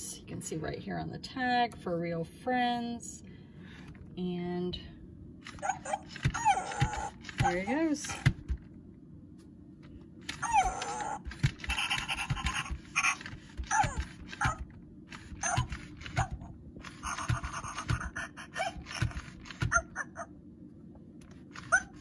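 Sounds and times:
toy dog panting: 0:05.4 - 0:08.3, 0:10.3 - 0:20.3
toy dog whimpering yips: 0:05.5 - 0:07.6, 0:10.3 - 0:20.3, 0:21.6 - 0:22.0
mechanism knocking: 0:10.2 - 0:20.0.

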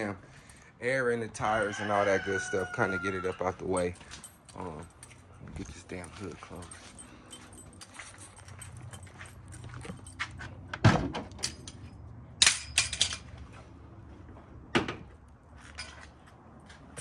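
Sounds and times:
metal clatter: 0:11.2 - 0:13.3.

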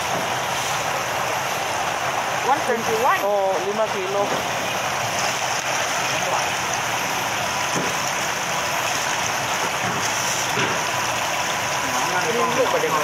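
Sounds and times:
water jets splashing into tank: 0:00.0 - 0:13.0.

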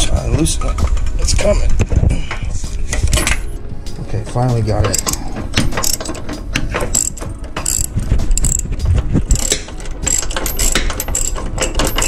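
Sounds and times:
socket ratchet clicking: 0:04.9 - 0:08.7, 0:09.3 - 0:12.0.

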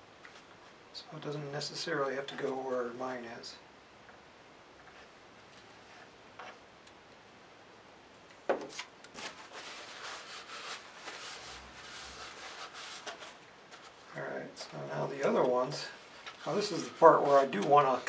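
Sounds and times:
hands rubbing and scraping tube: 0:09.2 - 0:14.1.

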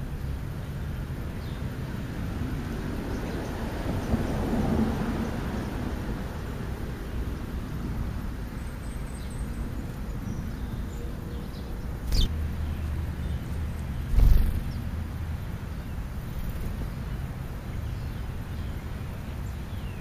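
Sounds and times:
wind rumble on microphone: 0:13.1 - 0:20.0
bird wings fluttering: 0:14.1 - 0:14.8, 0:16.2 - 0:16.9.

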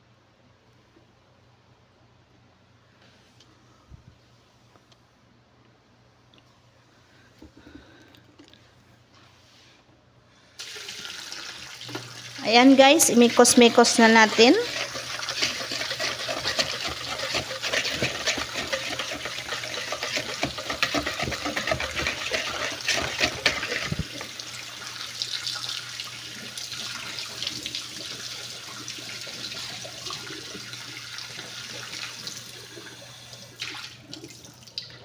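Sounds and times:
whisk beating dough in plastic bowl: 0:12.4 - 0:24.3.

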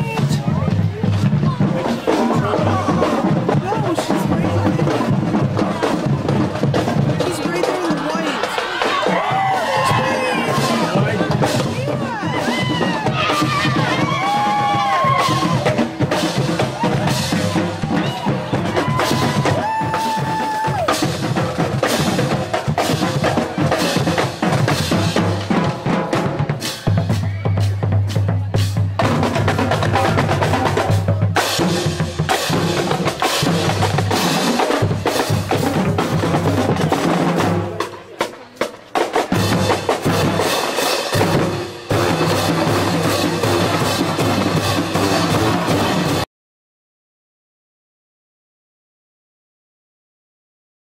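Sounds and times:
drumline playing: 0:00.0 - 0:46.3
held brass notes: 0:39.4 - 0:46.2.

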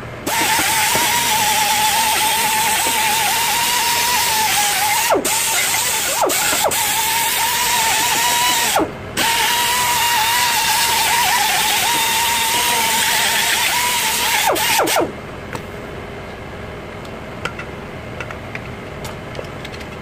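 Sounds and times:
air die grinder whining: 0:00.0 - 0:15.1.

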